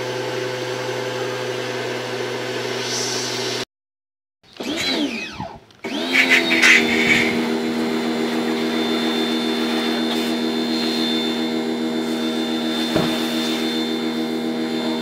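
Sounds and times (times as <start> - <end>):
pressure washer running: 4.6 - 15.0
brief knock: 12.9 - 13.2.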